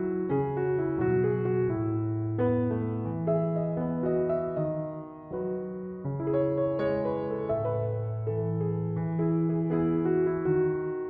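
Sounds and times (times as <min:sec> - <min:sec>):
gentle piano music: 0:00.0 - 0:11.0.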